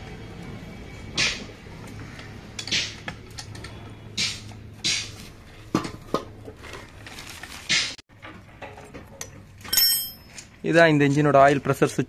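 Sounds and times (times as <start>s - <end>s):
sharp metal knocks: 4.2s - 5.2s.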